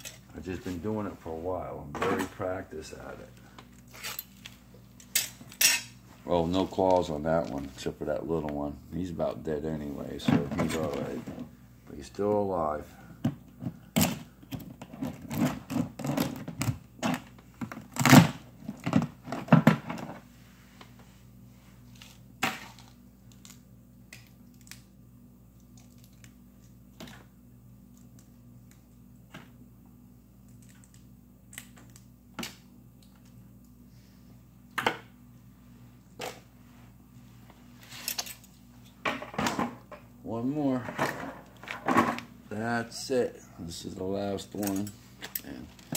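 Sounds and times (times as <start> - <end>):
low steady freezer hum: 0.0 - 45.9.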